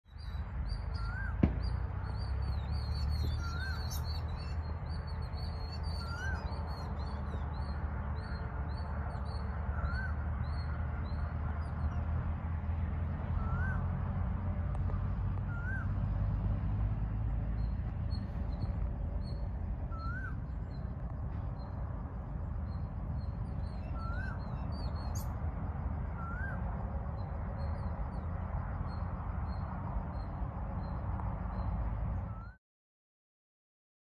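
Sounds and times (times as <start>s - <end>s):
faint high bird chirps: 0.1s - 12.1s, 13.3s - 13.9s, 14.8s - 16.4s, 17.5s - 32.6s
steady low rumble: 10.2s - 32.4s.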